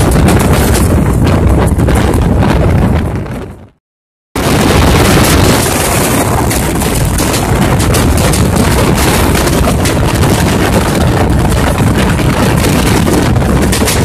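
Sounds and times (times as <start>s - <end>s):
wind buffeting microphone: 0.0s - 3.8s, 4.4s - 14.0s.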